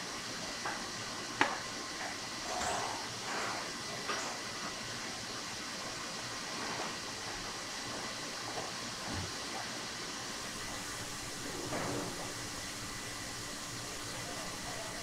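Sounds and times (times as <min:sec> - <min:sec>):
hissing kitchen background: 0:00.0 - 0:15.0.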